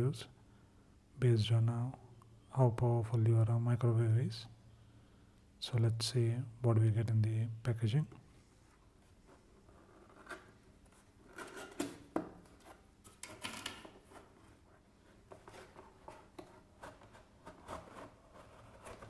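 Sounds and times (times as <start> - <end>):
cardboard rubbing and scraping: 14.0 - 19.0.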